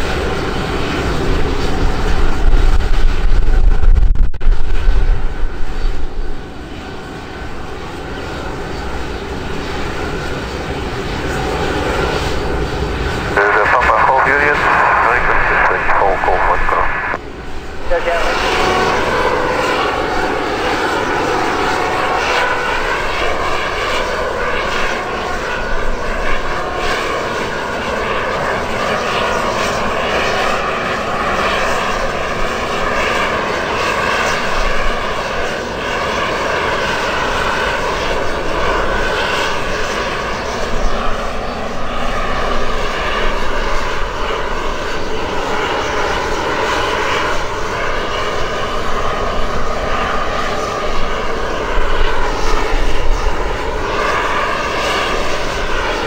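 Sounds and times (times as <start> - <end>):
aircraft engines running: 0.0 - 56.0
engine whine wavering in pitch: 0.0 - 56.0.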